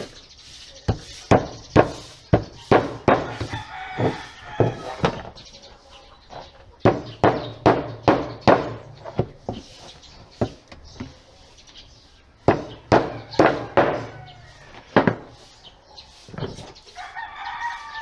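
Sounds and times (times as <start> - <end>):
rooster crowing: 3.2 - 5.1, 13.1 - 14.9, 17.0 - 18.0.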